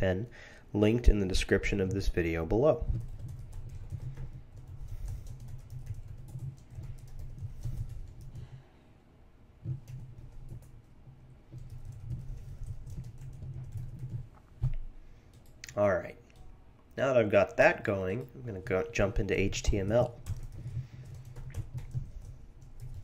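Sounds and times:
typing on a keyboard: 0:02.9 - 0:08.6, 0:09.6 - 0:10.9, 0:11.5 - 0:16.4, 0:19.8 - 0:23.0.

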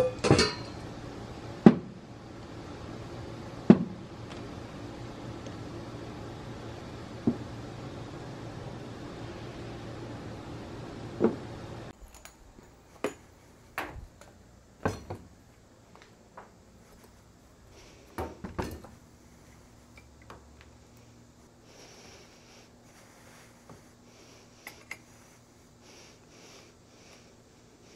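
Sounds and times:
steady hiss: 0:12.6 - 0:27.9.

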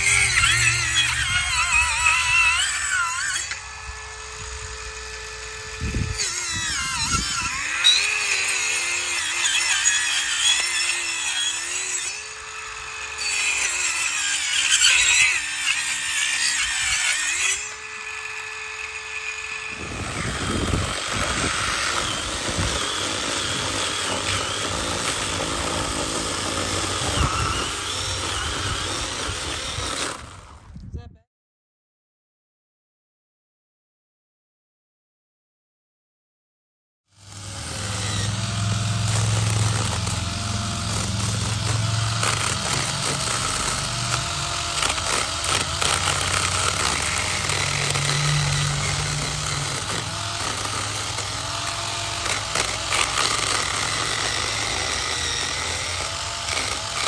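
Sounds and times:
power saw cutting wood: 0:00.0 - 0:30.6, 0:37.1 - 0:57.0.

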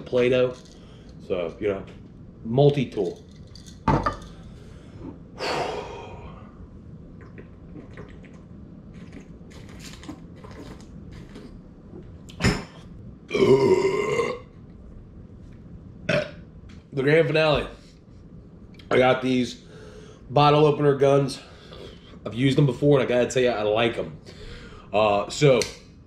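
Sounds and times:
man belching loudly: 0:13.3 - 0:14.5, 0:16.1 - 0:16.4.

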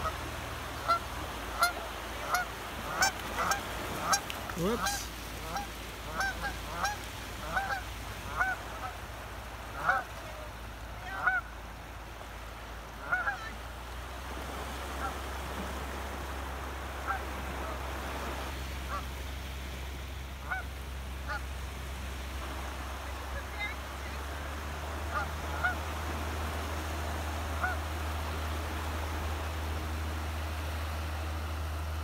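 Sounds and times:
geese honking: 0:00.0 - 0:11.6, 0:12.9 - 0:13.6, 0:14.9 - 0:15.3, 0:17.0 - 0:19.1, 0:20.4 - 0:21.5, 0:22.4 - 0:29.9.

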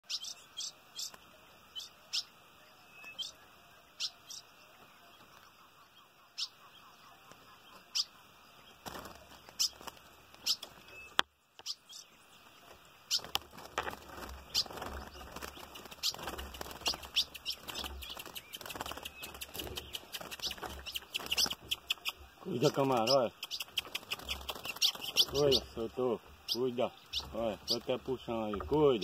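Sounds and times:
bird chirp calls: 0:00.0 - 0:29.0
wings fluttering against wire cage: 0:08.8 - 0:11.0, 0:12.5 - 0:25.8.

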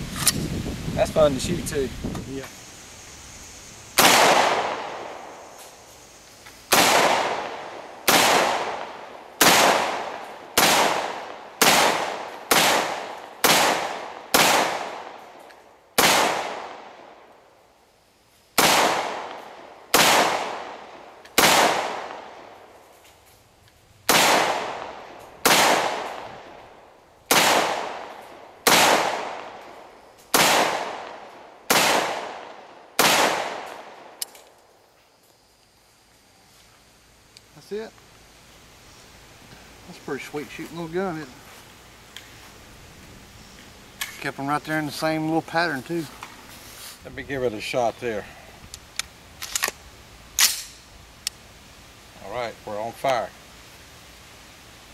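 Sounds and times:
rifle shots echoing: 0:04.0 - 0:05.4, 0:06.7 - 0:15.4, 0:16.0 - 0:17.2, 0:18.6 - 0:22.6, 0:24.1 - 0:26.6, 0:27.3 - 0:29.7, 0:30.3 - 0:34.2.

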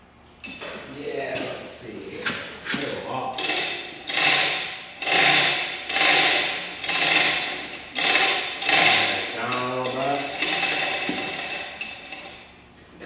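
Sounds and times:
ratchet clicking: 0:03.3 - 0:12.5.

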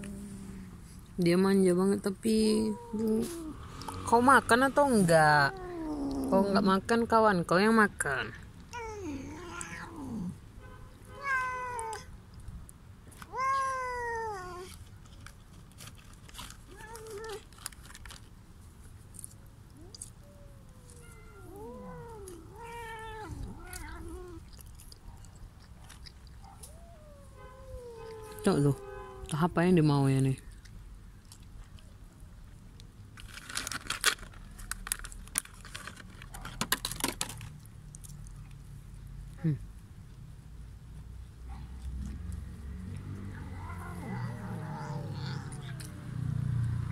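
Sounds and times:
cat meowing: 0:08.7 - 0:10.4, 0:11.2 - 0:12.1, 0:19.8 - 0:24.6, 0:26.6 - 0:29.4, 0:43.3 - 0:46.0
plastic food packet crinkling: 0:15.1 - 0:18.3, 0:33.2 - 0:37.4.

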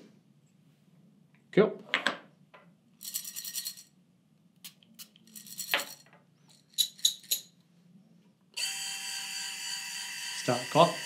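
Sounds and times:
coffee beans rattling in metal cup: 0:03.0 - 0:03.9, 0:05.1 - 0:06.0.

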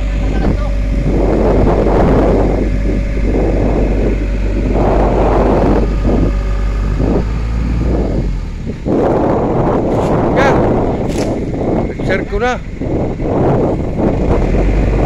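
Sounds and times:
truck engine droning: 0:00.0 - 0:15.0
wind gusts on microphone: 0:00.0 - 0:15.0.

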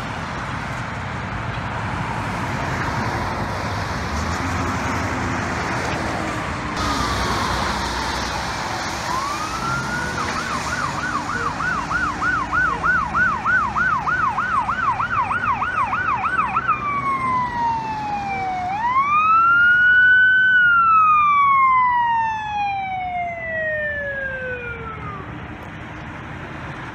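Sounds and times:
road traffic: 0:00.0 - 0:26.9
ambulance siren wailing and yelping: 0:06.8 - 0:25.4.

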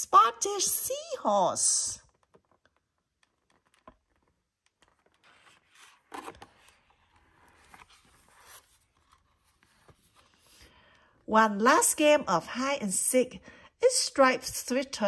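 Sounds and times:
book pages rustling and turning: 0:02.1 - 0:11.1.

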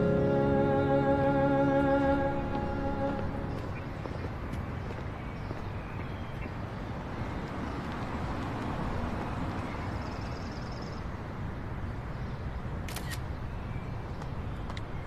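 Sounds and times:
city street traffic: 0:00.0 - 0:15.0
phone camera shutter clicks: 0:12.9 - 0:13.2.

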